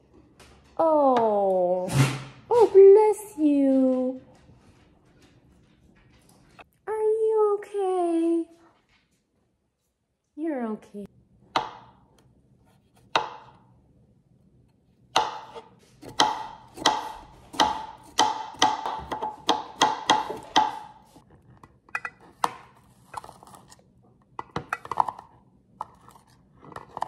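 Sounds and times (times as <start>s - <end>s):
knife chopping on cutting board: 12.7s - 13.6s, 15.1s - 21.2s.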